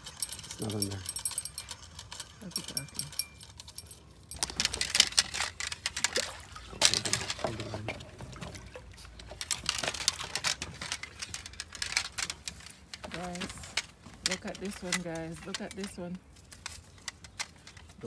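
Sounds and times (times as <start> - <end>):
fish thrashing in water: 4.4 - 10.8.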